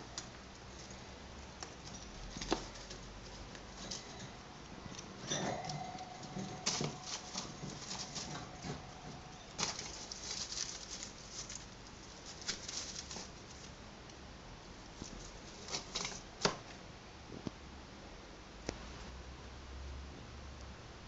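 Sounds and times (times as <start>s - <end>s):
rats rustling cardboard bedding: 0.0s - 14.0s, 14.6s - 16.8s.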